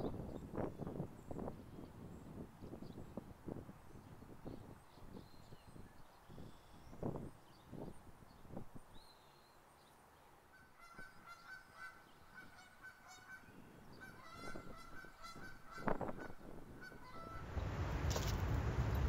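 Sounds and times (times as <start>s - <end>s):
geese honking: 10.6s - 17.5s.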